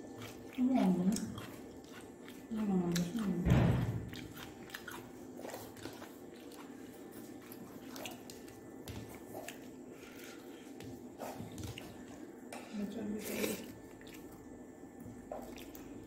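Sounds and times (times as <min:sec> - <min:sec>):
person chewing food: 0:00.0 - 0:12.6, 0:13.3 - 0:16.0.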